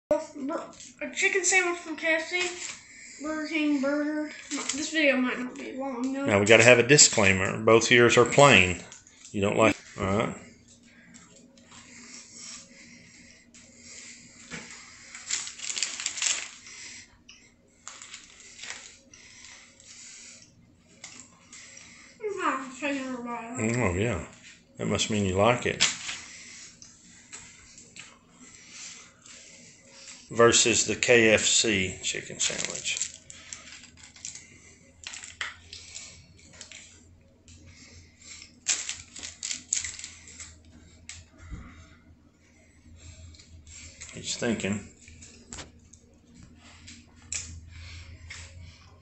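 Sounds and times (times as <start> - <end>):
food wrapper rustling: 14.5 - 17.1, 17.8 - 19.8, 31.3 - 37.1, 38.3 - 41.2
chewing: 26.3 - 30.3.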